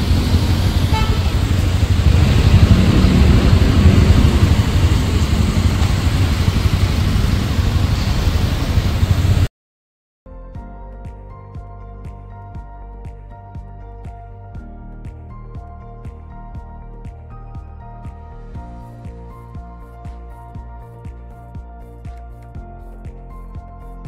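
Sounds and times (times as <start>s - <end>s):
motorcycle engine: 0.0s - 9.5s
wind rumble on microphone: 0.0s - 9.5s.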